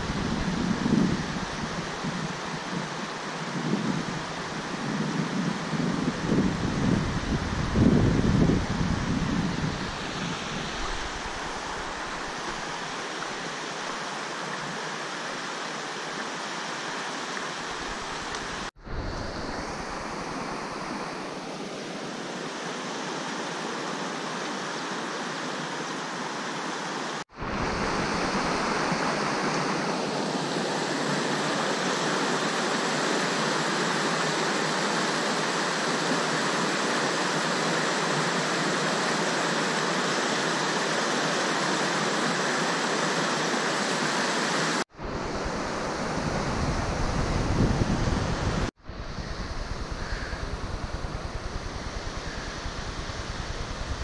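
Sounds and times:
river water rushing: 0:08.7 - 0:47.6.

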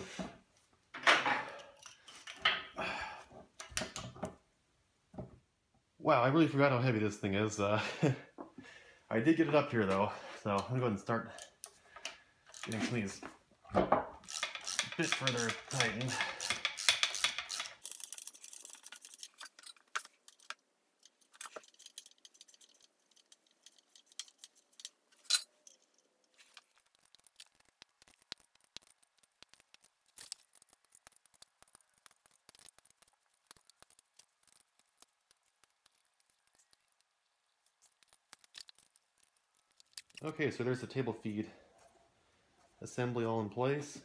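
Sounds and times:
hand ratchet clicking: 0:14.2 - 0:19.2.

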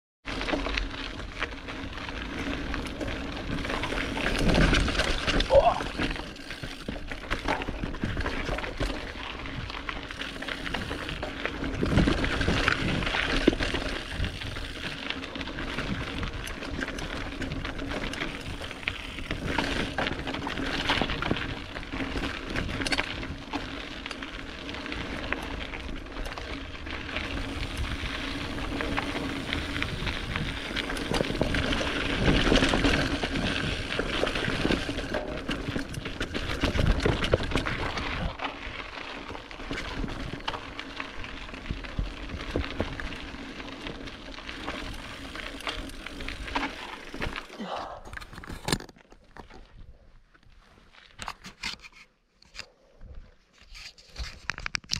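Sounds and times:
bike tyres rolling over gravel: 0:00.2 - 0:51.7
bike clattering and rattling: 0:00.3 - 0:49.8.

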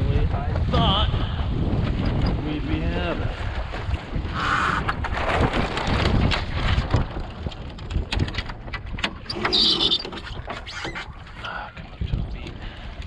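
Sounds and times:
water rushing along hull: 0:00.0 - 0:13.0
wind buffeting microphone: 0:00.0 - 0:13.0
rigging clicks and knocks: 0:04.9 - 0:11.1
high-pitched squeak: 0:09.3 - 0:11.0.

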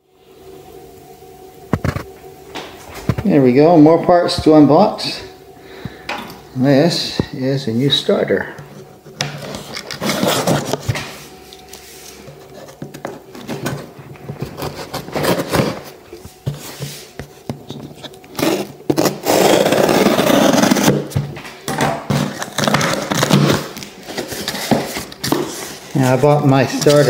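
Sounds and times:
cardboard box scraping and rustling: 0:09.3 - 0:21.3, 0:22.1 - 0:27.0
loud rough cardboard scrape: 0:09.4 - 0:11.2, 0:11.9 - 0:17.2, 0:17.9 - 0:21.2, 0:22.1 - 0:26.2.

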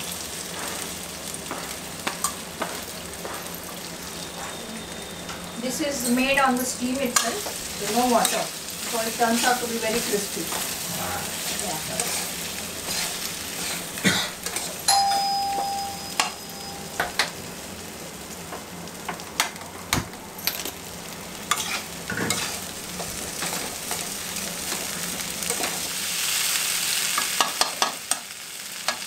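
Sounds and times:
potatoes sizzling in oil: 0:00.0 - 0:29.0
metal spatula scraping a pan: 0:07.0 - 0:14.8, 0:21.5 - 0:24.1
sharp metallic ding: 0:14.9 - 0:17.2.

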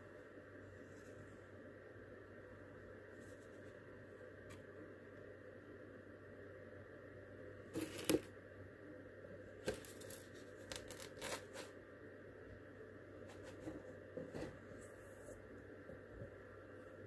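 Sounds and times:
paper card rustling and crackling: 0:09.7 - 0:11.8.

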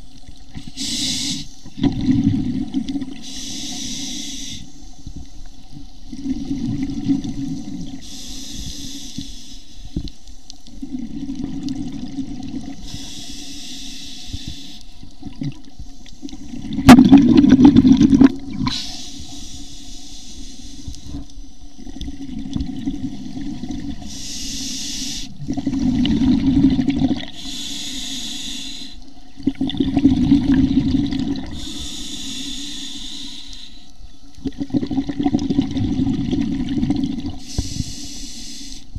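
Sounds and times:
regulator hiss on inhalation: 0:00.6 - 0:01.8, 0:03.1 - 0:05.4, 0:07.6 - 0:10.7, 0:12.7 - 0:15.1, 0:15.7 - 0:16.6, 0:18.6 - 0:21.9, 0:24.0 - 0:25.4, 0:27.3 - 0:29.2, 0:31.4 - 0:34.0, 0:37.3 - 0:38.9
exhaust bubbles rumbling: 0:16.4 - 0:18.7, 0:25.4 - 0:27.3, 0:29.4 - 0:31.6, 0:34.4 - 0:37.4.

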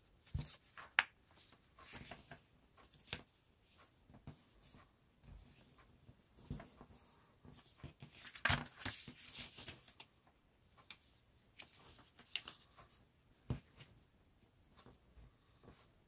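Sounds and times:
paper rustling and crinkling: 0:00.2 - 0:03.3, 0:07.5 - 0:10.1, 0:11.6 - 0:12.8.

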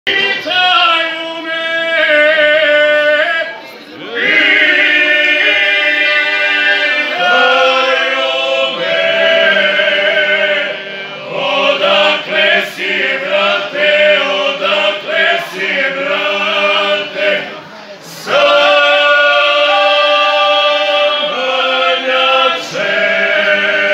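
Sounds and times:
men singing unaccompanied folk song: 0:04.1 - 0:17.5, 0:18.1 - 0:23.9.

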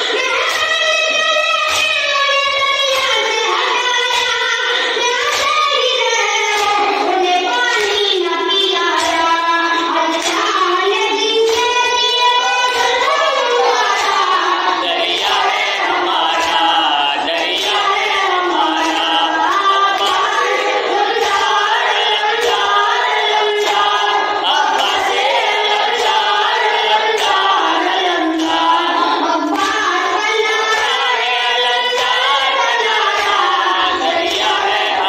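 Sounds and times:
boy reciting through microphone: 0:00.0 - 0:35.0
men's voices chorus: 0:13.2 - 0:27.5.

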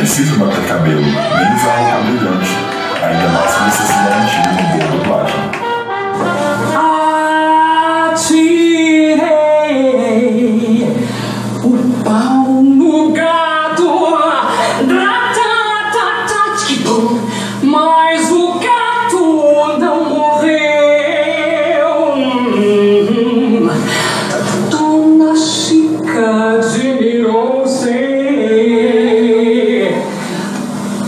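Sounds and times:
song with sung lead vocal: 0:06.6 - 0:31.0.

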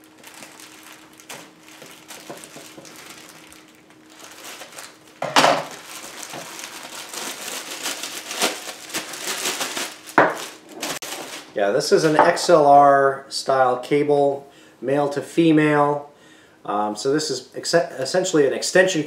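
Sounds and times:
plastic bag ripping: 0:00.0 - 0:12.2
plastic bag crinkling: 0:00.0 - 0:12.5.

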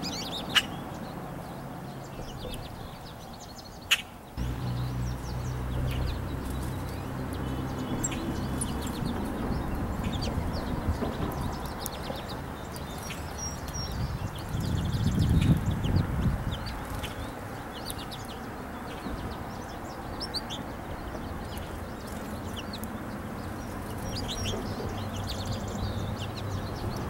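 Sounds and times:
songbirds chirping: 0:00.0 - 0:27.0
low steady hum: 0:04.4 - 0:10.2.

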